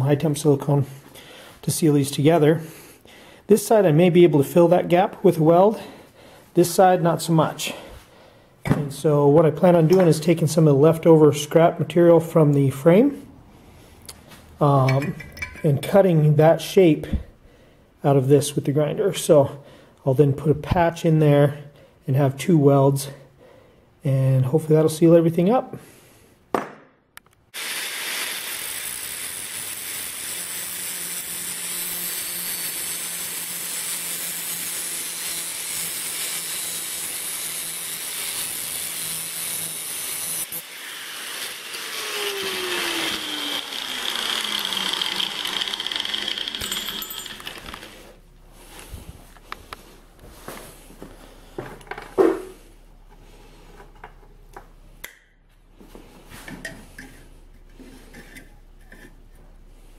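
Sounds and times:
angle grinder cutting steel: 27.6 - 48.1.

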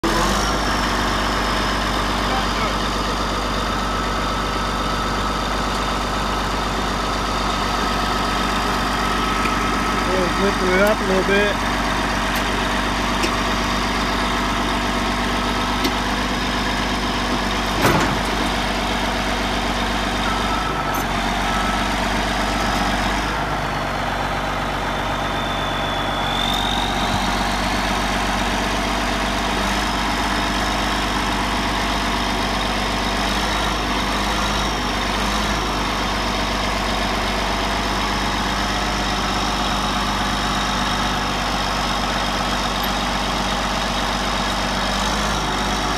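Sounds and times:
bulldozer diesel engine running: 0.0 - 45.9
brief high whine: 24.9 - 28.0.

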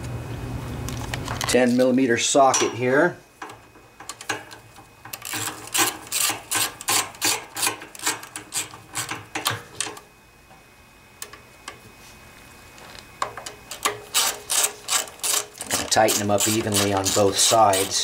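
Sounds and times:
ratchet wrench clicking: 13.8 - 18.0.

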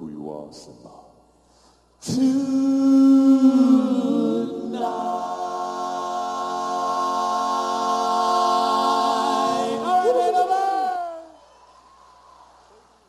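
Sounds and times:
male vocal group singing a cappella: 2.0 - 11.3.

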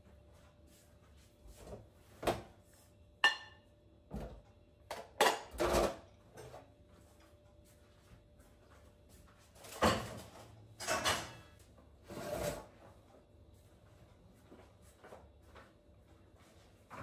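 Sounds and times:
pots and pans clattering: 4.9 - 6.5, 9.6 - 11.6.

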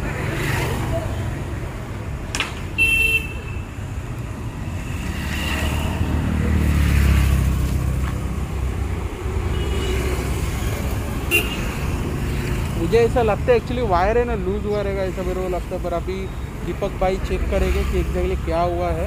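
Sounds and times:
road traffic rumble: 0.0 - 19.0
vehicle passing: 4.3 - 16.0.

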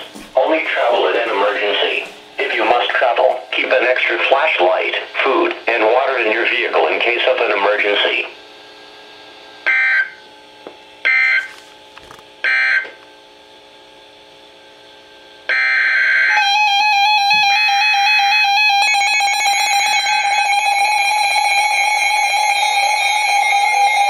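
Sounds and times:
weather radio alert alarms beeping: 9.7 - 10.2, 11.1 - 11.5, 12.5 - 12.9.

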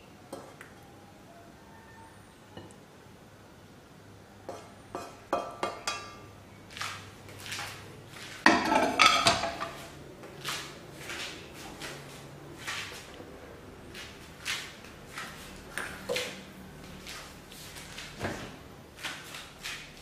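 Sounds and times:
cookware clattering: 4.5 - 6.3, 8.4 - 9.8
soft scuffs: 6.7 - 8.4, 9.7 - 13.2.

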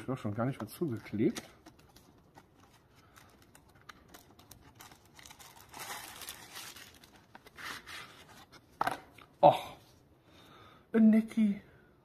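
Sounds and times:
plastic sleeve crinkling: 0.6 - 8.6.

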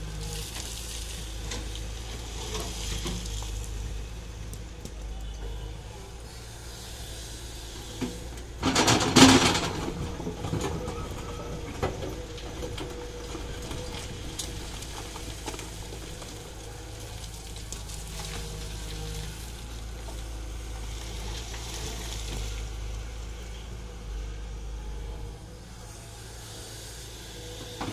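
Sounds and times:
excavator diesel engine running: 0.0 - 27.9.

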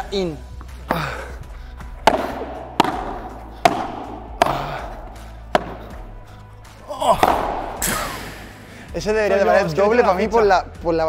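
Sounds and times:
ball popping off rackets: 1.8 - 8.6.

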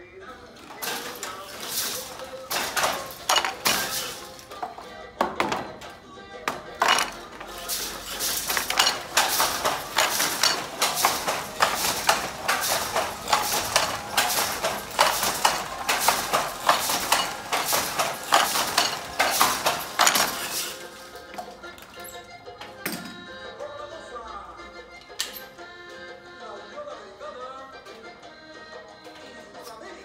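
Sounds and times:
wooden loom knocking and clacking: 0.6 - 21.6.

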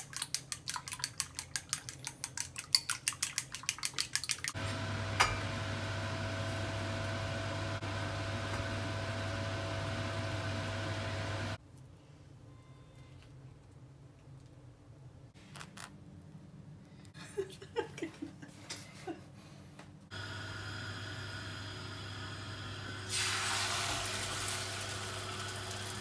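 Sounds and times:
chopsticks beating eggs in bowl: 0.0 - 4.6
stove hum and hiss: 4.6 - 11.6, 19.8 - 26.0.

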